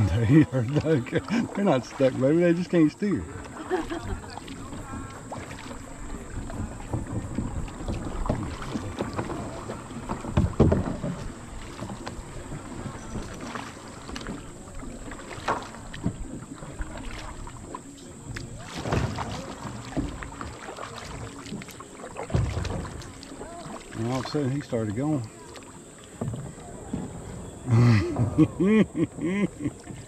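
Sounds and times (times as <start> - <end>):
paddle splashing through water: 0.0 - 30.0
wind rumble on microphone: 3.9 - 11.5.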